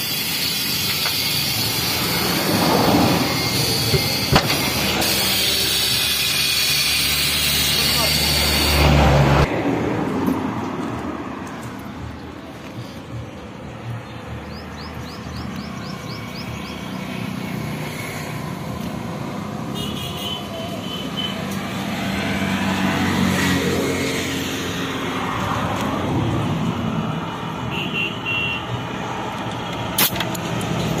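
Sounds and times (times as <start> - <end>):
motor traffic: 0.0 - 31.0
vehicle passing: 1.5 - 19.8, 21.4 - 27.6.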